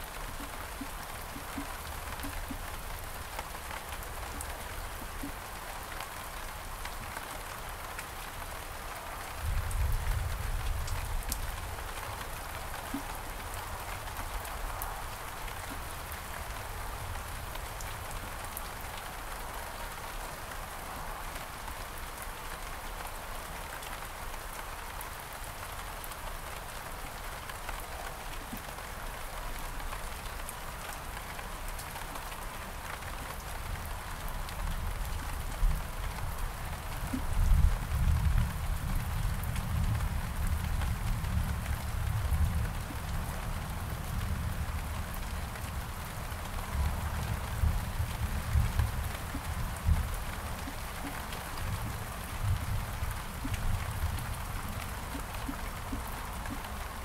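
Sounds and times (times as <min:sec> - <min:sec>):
rain falling on garden: 0:00.0 - 0:57.0
water drips ticking: 0:54.7 - 0:57.0.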